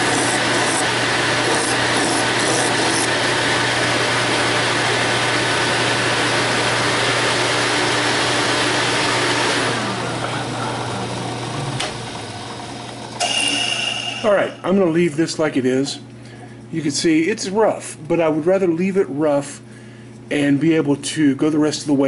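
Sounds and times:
drill press with sanding drum: 0:00.0 - 0:14.6
shop vacuum running: 0:00.0 - 0:20.5
machines winding down hum: 0:08.7 - 0:15.4.

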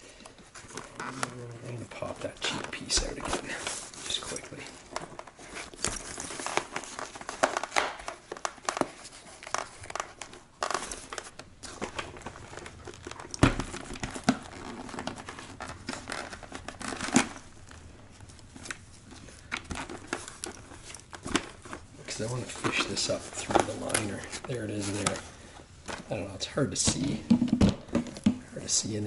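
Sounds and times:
hands rustling on helmet padding: 0:14.0 - 0:27.2.

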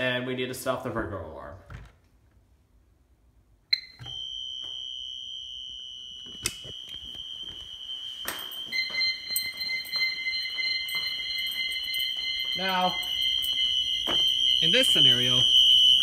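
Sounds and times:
lower alarm tone: 0:03.7 - 0:16.0
high-pitched alarm tone: 0:03.8 - 0:16.0.

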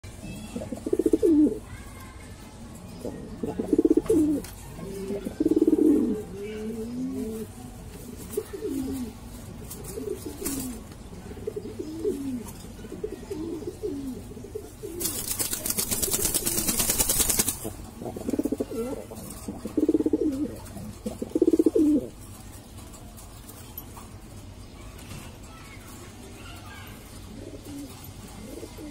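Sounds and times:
pigeons cooing: 0:00.3 - 0:01.6, 0:02.8 - 0:23.2, 0:26.6 - 0:28.9
wings flapping: 0:09.7 - 0:10.8, 0:14.8 - 0:20.4.

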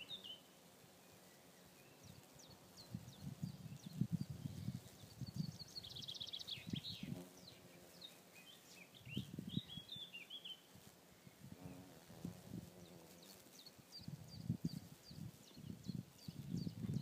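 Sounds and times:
small birds singing: 0:00.0 - 0:17.0.

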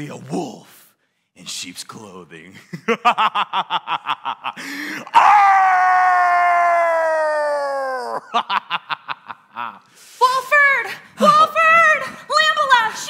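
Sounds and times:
man laughing: 0:02.6 - 0:05.1, 0:07.8 - 0:09.8.

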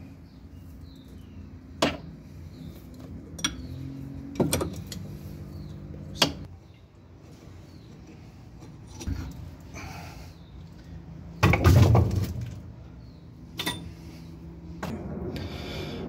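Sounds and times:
spanner clinking on metal: 0:03.2 - 0:03.7, 0:13.6 - 0:14.0.

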